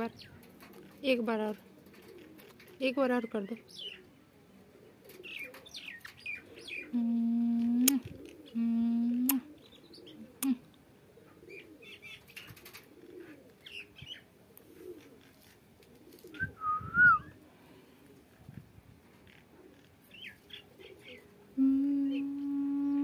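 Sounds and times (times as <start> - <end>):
steady low hums: 21.3 - 23.0.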